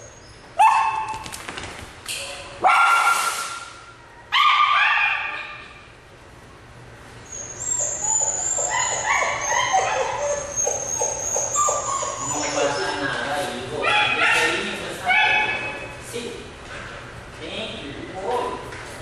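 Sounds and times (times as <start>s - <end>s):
dog crying and yelping: 4.3s - 5.6s, 7.3s - 15.8s.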